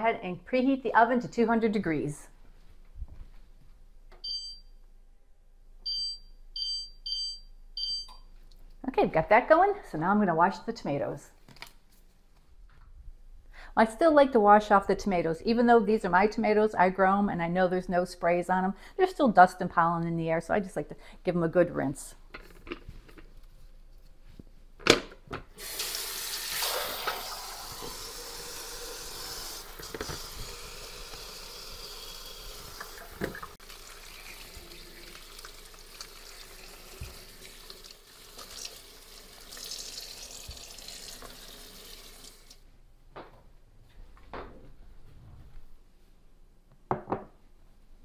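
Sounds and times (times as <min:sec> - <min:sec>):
faucet running onto tomatoes: 0:25.6 - 0:42.6.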